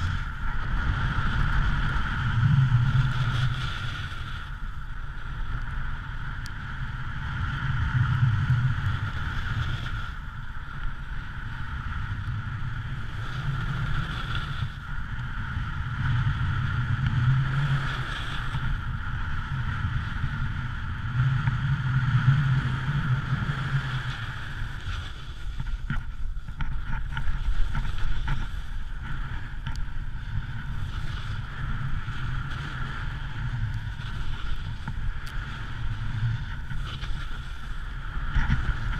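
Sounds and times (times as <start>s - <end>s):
snowboard scraping over snow: 0.0s - 38.9s
wind rushing over microphone: 0.0s - 38.9s.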